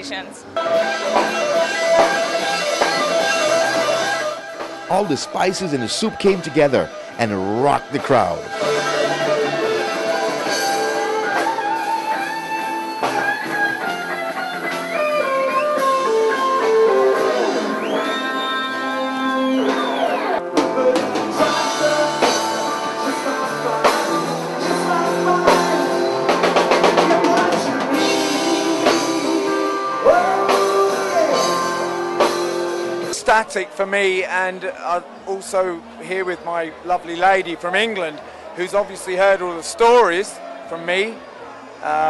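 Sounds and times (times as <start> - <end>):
electric guitar: 0.0 - 33.2
bass guitar: 0.4 - 33.2
drum kit: 0.6 - 18.4, 19.4 - 33.2
person singing: 26.8 - 31.8.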